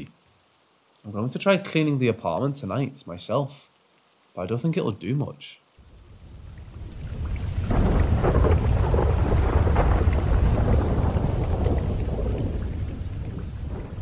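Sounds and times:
steady rain: 0:00.0 - 0:14.0
rolling thunder rumble: 0:06.0 - 0:14.0.

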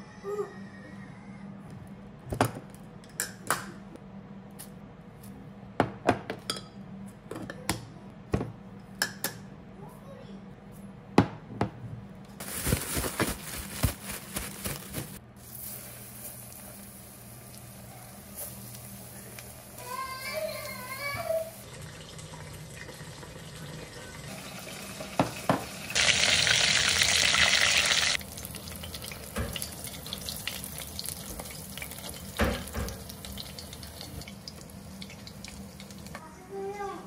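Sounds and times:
plastic bag rustling: 0:12.4 - 0:15.2
chicken sizzling in hot oil: 0:15.4 - 0:36.2.

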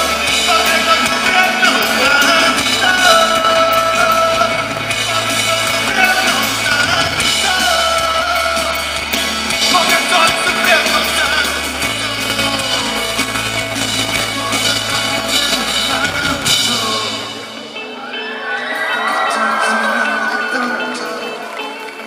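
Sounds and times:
drums with cymbals: 0:00.0 - 0:17.6
bass guitar: 0:00.0 - 0:22.0
electric guitar: 0:00.0 - 0:22.0
person singing: 0:00.0 - 0:22.0.

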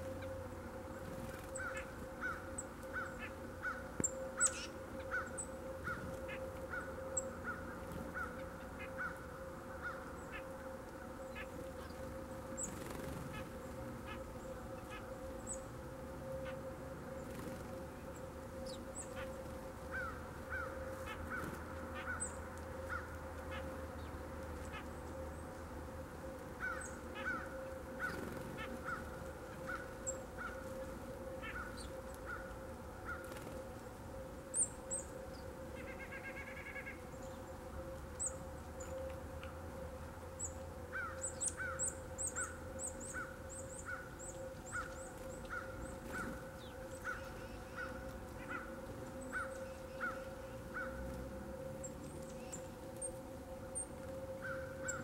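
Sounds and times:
steady hum: 0:00.0 - 0:55.0
small birds chipping: 0:01.0 - 0:09.2
crows cawing: 0:01.6 - 0:10.6, 0:19.2 - 0:23.8, 0:26.6 - 0:30.8, 0:31.4 - 0:33.3, 0:40.9 - 0:51.0, 0:54.4 - 0:55.0.

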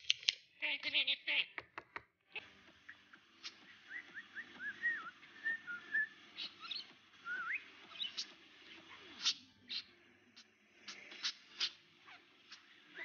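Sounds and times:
budgerigar whistling: 0:03.4 - 0:10.0, 0:10.8 - 0:13.0.

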